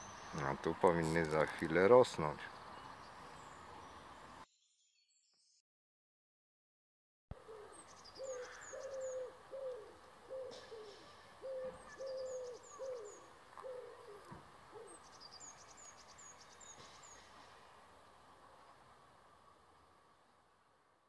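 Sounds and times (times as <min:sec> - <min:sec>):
pigeon cooing: 0:07.3 - 0:15.0
small bird high calls: 0:07.3 - 0:17.6.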